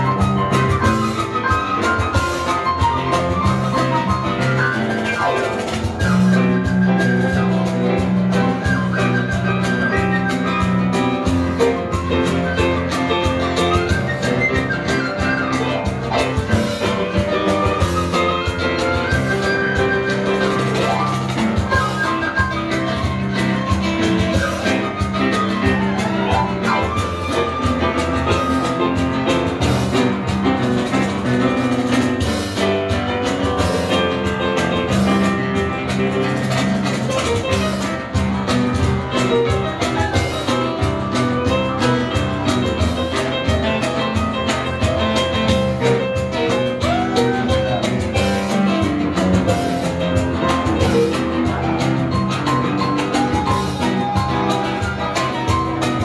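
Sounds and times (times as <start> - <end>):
bamboo flute melody: 0.0 - 30.1, 46.3 - 48.7, 52.3 - 56.0
drums: 0.0 - 56.0
guitar: 0.0 - 56.0
keyboard: 0.0 - 56.0.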